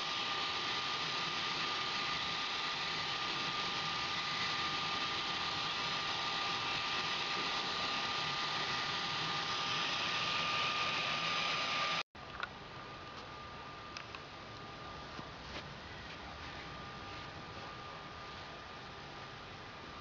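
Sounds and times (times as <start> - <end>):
blower fan whirring: 0.0 - 12.0.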